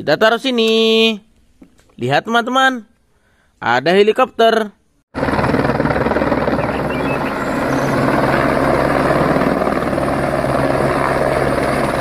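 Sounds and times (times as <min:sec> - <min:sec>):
helicopter engine noise: 0:05.2 - 0:12.0
helicopter rotor chop: 0:05.2 - 0:12.0.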